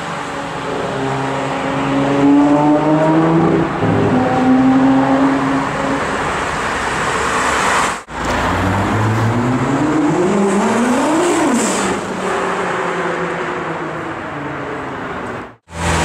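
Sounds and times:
street traffic noise: 0.0 - 16.0
engine revving up: 8.1 - 12.1.

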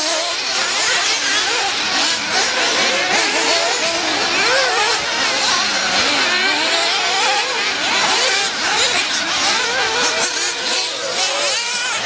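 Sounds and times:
small engines buzzing and revving: 0.0 - 12.0.

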